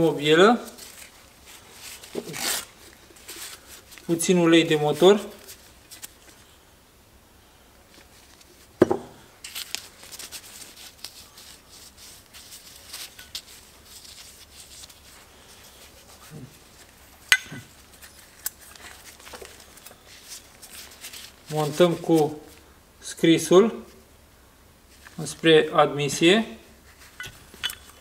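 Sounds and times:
dull knock on workbench: 8.8 - 9.1
metal parts rubbing and clicking: 27.0 - 28.0.

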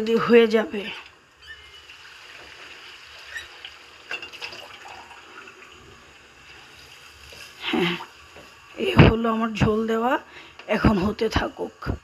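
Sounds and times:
gravy bubbling in a pot: 0.8 - 9.3.

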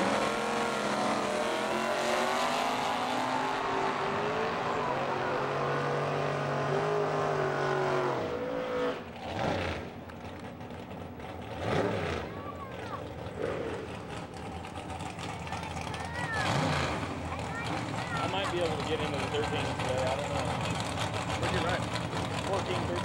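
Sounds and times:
drag cars accelerating: 0.0 - 23.0.

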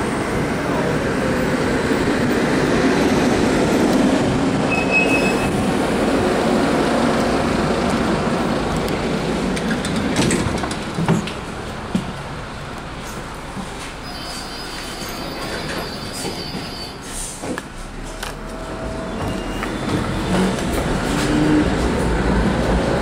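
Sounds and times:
tram rumbling: 0.0 - 23.0
high-pitched squeal: 18.3 - 21.6.

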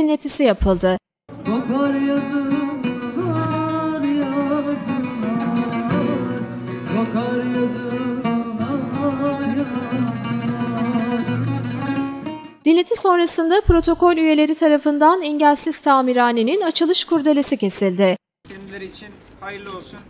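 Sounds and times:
long-necked lute strummed and plucked: 1.3 - 12.6
woman singing into a microphone: 1.5 - 10.0.

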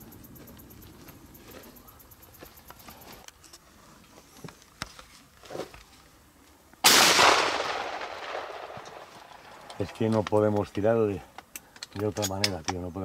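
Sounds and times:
shotgun shot: 6.8 - 9.1.

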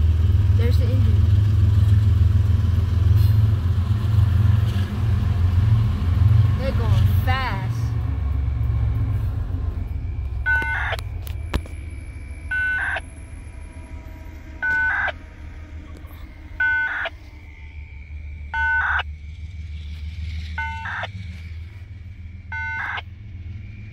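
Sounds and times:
freight train rumbling: 0.0 - 23.9
electronic beeps: 10.4 - 11.8, 12.4 - 13.1, 14.6 - 15.2, 16.0 - 17.2, 18.5 - 19.1, 20.6 - 21.2, 22.5 - 23.1.

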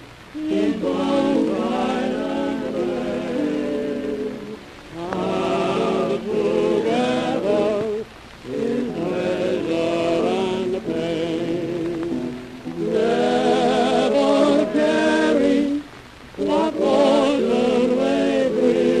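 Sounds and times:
old recording of singing with vibrato: 0.0 - 19.0.

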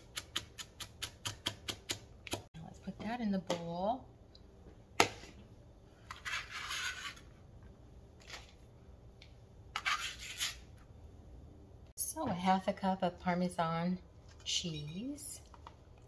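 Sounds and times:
knife scraping on plastic board: 6.1 - 7.2, 9.8 - 10.6.

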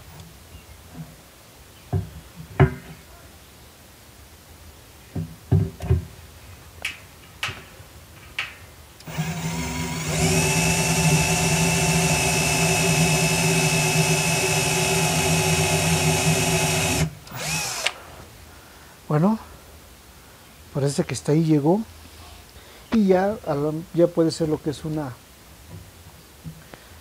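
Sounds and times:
power drill boring into steel: 9.0 - 18.0.

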